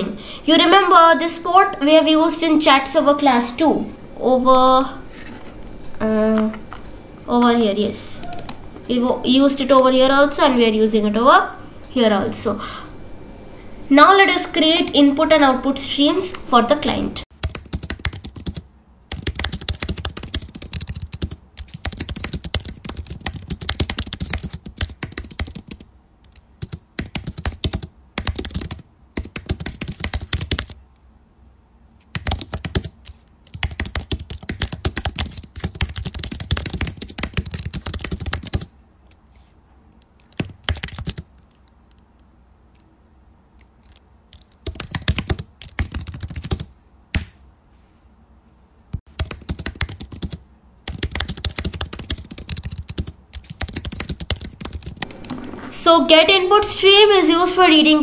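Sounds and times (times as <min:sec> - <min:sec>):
typing on computer keyboard: 0:17.4 - 0:30.8, 0:32.0 - 0:39.2, 0:39.9 - 0:42.0, 0:43.6 - 0:47.3, 0:49.1 - 0:55.7.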